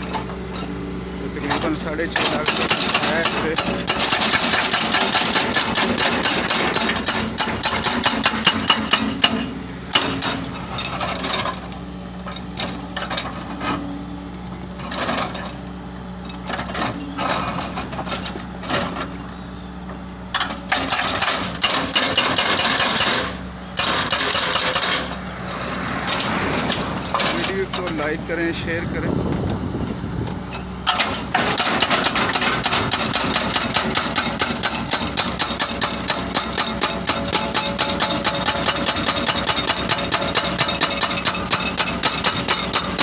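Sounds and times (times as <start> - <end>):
hydraulic rock breaker hammering: 0.0 - 29.6, 30.2 - 43.0
diesel engine running: 0.0 - 43.0.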